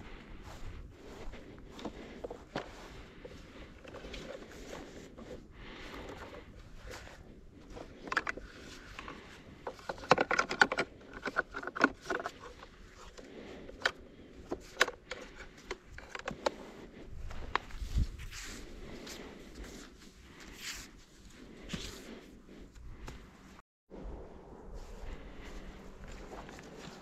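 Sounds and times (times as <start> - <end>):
objects clicking and rattling: 7.7 - 16.6.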